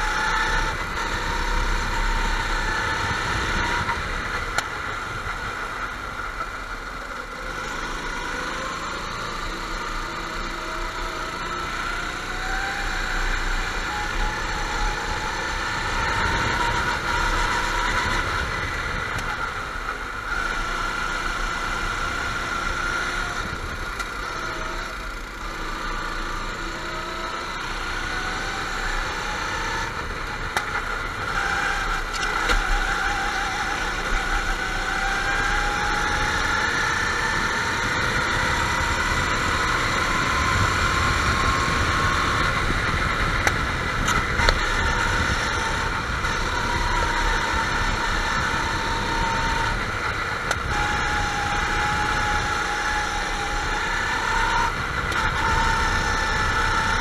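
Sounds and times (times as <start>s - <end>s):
go-kart engines revving: 0.0s - 57.0s.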